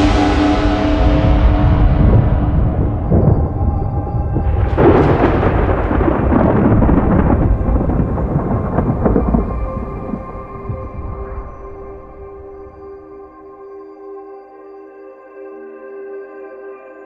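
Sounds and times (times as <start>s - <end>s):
thunderclap rumbling: 0.0s - 13.0s
low ambient music: 0.0s - 17.0s.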